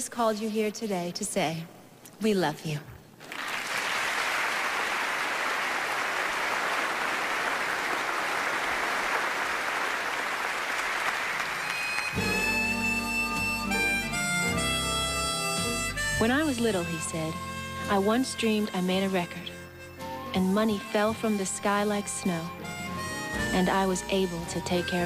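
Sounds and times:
audience applauding: 3.2 - 12.5
instrumental music: 11.6 - 25.0.

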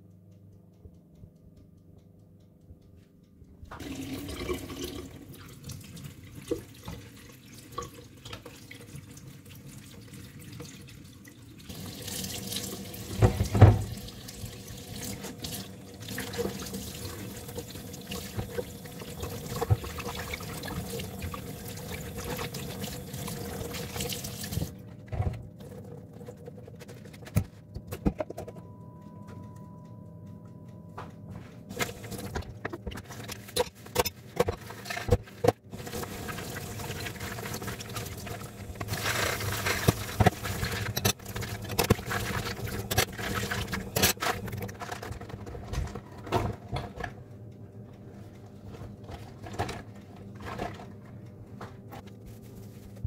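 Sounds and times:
water running: 3.7 - 24.8, 31.7 - 35.1, 35.7 - 44.5.

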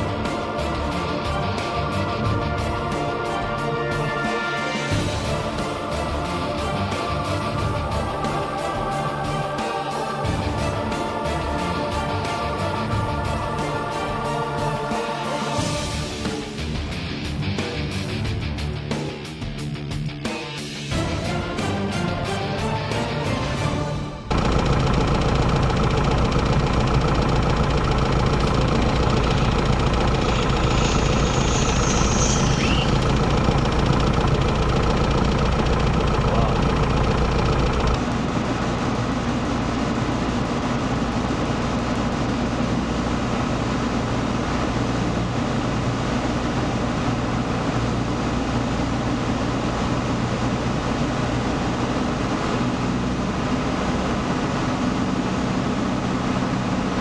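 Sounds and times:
aircraft engine idling: 0.0 - 19.0, 22.5 - 57.0
high whine falling in pitch: 24.3 - 43.5.

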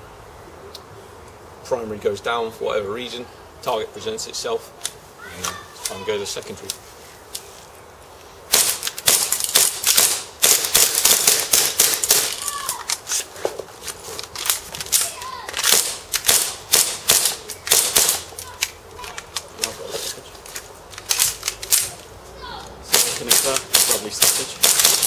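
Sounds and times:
airsoft pistols firing: 8.5 - 12.4, 14.4 - 18.8, 22.9 - 25.0
pistol clicks: 20.5 - 22.0.

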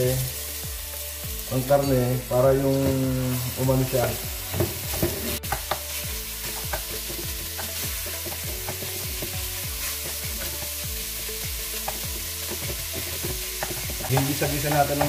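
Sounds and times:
meat sizzling in pot: 0.0 - 15.0
wooden spoon scraping and knocking pot: 11.8 - 15.0.

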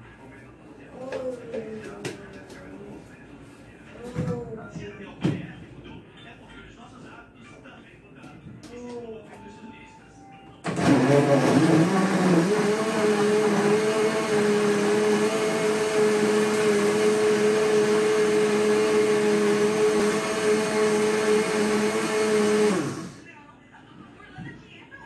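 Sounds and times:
blender motor whining: 10.7 - 23.2.

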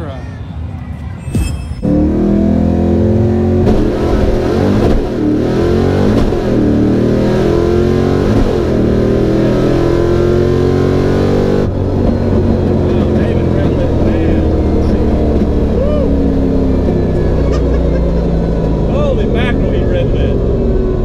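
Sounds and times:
car engine at full throttle: 1.8 - 21.0.

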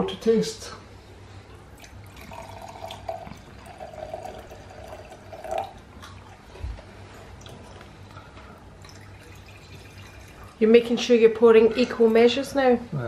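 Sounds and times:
wine pouring into glass: 1.8 - 6.4, 8.8 - 10.6.

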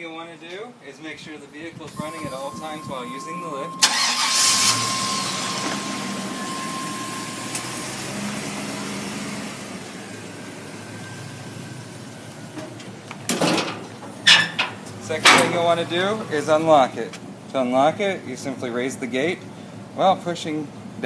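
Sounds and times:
truck engine idling: 1.9 - 17.5.

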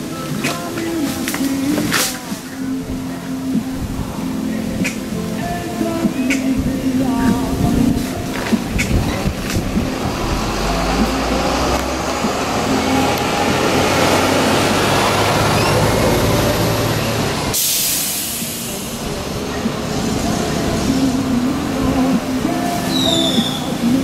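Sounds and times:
loud hiss: 0.0 - 24.0
vehicle low rumble: 6.6 - 17.6.

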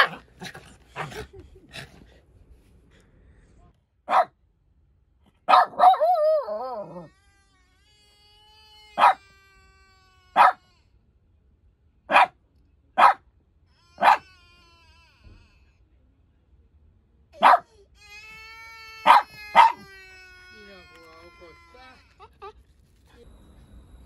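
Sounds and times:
dog barking: 0.0 - 1.3, 4.1 - 4.4, 5.5 - 7.1, 9.0 - 9.2, 10.4 - 10.6, 12.1 - 12.4, 13.0 - 13.2, 14.0 - 14.2, 17.4 - 17.7, 19.0 - 19.8
dog howling whine: 5.8 - 10.8, 13.8 - 15.4, 18.3 - 22.0.

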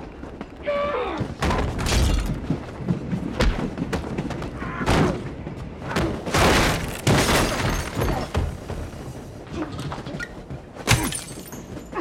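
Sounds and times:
breaking and shattering: 6.4 - 8.3.

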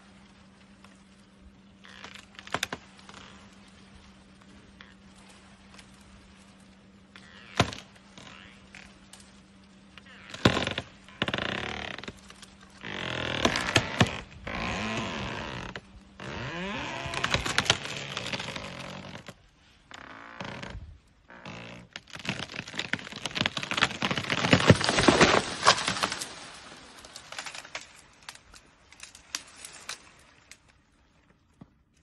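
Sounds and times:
branches cracking and crackling: 0.0 - 32.0
tree creaking: 0.0 - 32.0
wood cracking and snapping: 1.8 - 3.5, 7.2 - 9.4, 10.0 - 19.4, 20.0 - 30.6.

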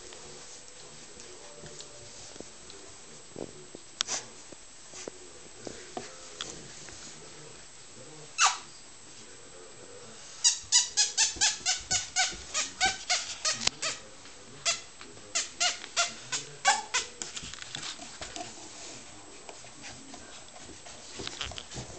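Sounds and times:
puppies squealing: 8.4 - 8.7, 10.4 - 14.0, 14.6 - 17.2.

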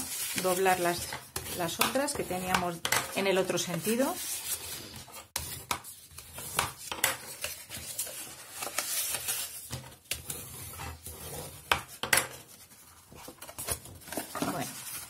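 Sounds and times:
paper rustling: 3.2 - 15.0.

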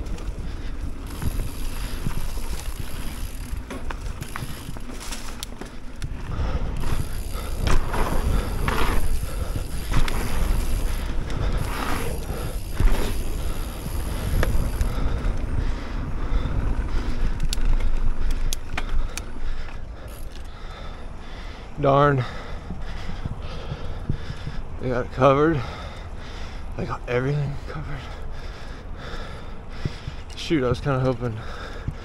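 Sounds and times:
bike rattling and clicking: 0.0 - 32.0
bike tyres rolling on dirt: 0.0 - 32.0
wind rumble on microphone: 5.9 - 20.1, 22.2 - 26.9.

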